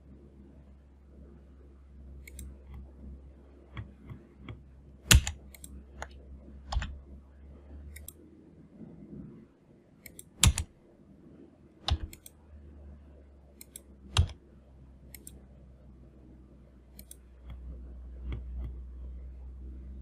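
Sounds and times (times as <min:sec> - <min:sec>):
low steady hum: 0:00.0 - 0:20.0
computer mouse clicks: 0:02.2 - 0:02.9, 0:03.7 - 0:07.0, 0:07.9 - 0:08.2, 0:10.0 - 0:10.7, 0:11.8 - 0:12.4, 0:13.6 - 0:14.4, 0:15.1 - 0:15.4, 0:16.9 - 0:18.8
keyboard clicks: 0:03.7 - 0:07.0, 0:10.0 - 0:10.7, 0:11.8 - 0:12.4, 0:13.6 - 0:14.4, 0:15.1 - 0:15.4.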